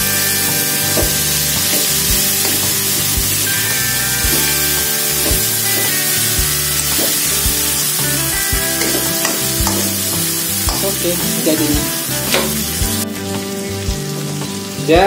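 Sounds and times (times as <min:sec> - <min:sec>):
food sizzling in a wok: 0:00.0 - 0:15.0
metal spatula scraping pan: 0:00.6 - 0:07.8, 0:08.8 - 0:11.2.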